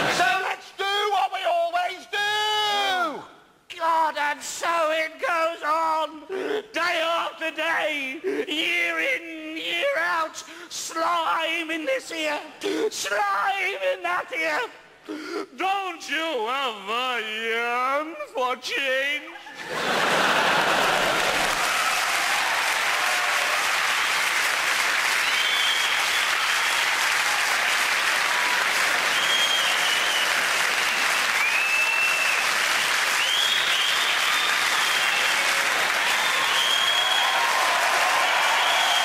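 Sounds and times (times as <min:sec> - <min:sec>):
audience applauding: 0:19.6 - 0:39.0
short high whistles: 0:36.2 - 0:37.3.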